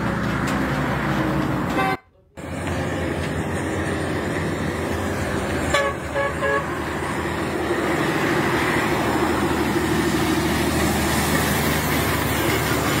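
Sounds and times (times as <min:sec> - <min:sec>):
lorry diesel engine passing: 0:00.0 - 0:13.0
horn toots: 0:01.7 - 0:02.2, 0:05.7 - 0:06.8.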